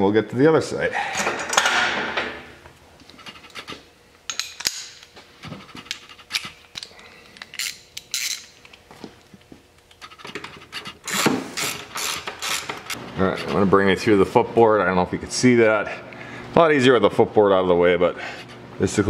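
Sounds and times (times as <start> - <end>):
wrench clicking against metal: 5.9 - 8.8.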